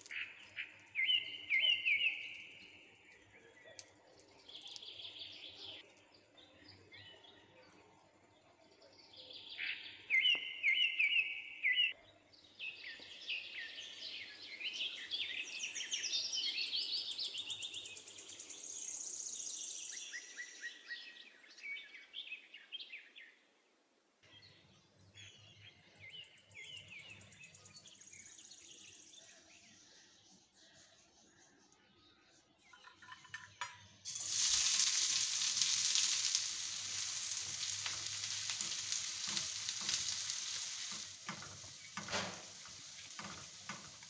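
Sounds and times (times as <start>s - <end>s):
birds chirping and singing: 0.0s - 7.8s.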